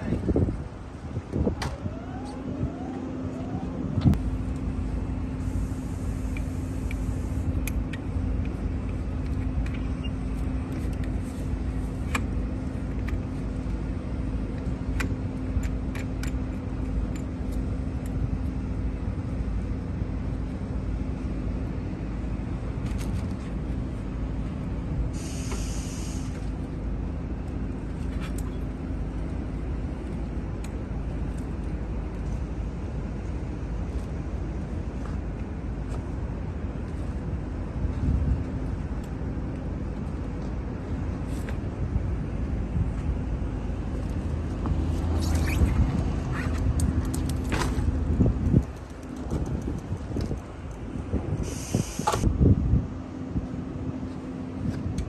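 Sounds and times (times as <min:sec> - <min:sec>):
brief hisses: 0:25.2 - 0:26.4, 0:51.4 - 0:52.2.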